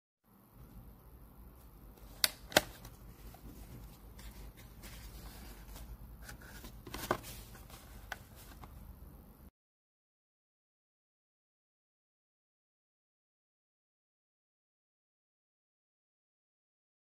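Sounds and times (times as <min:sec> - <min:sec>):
cardboard boxes rustling: 0:03.1 - 0:08.7.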